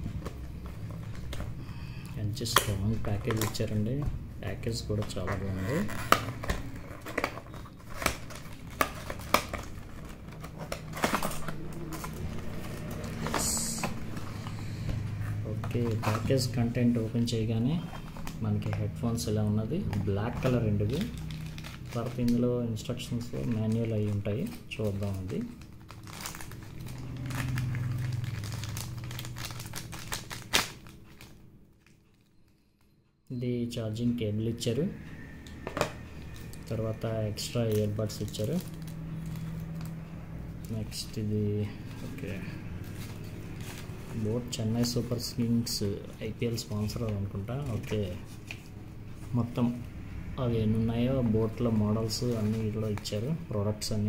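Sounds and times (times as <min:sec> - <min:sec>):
low steady hum: 0:00.0 - 0:54.0
plastic pouch crinkling: 0:05.0 - 0:32.9, 0:36.3 - 0:40.0.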